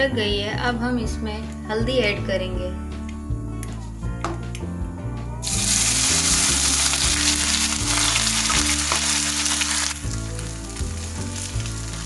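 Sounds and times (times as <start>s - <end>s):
background music: 0.0s - 12.0s
turmeric sizzling in hot ghee: 5.4s - 12.0s.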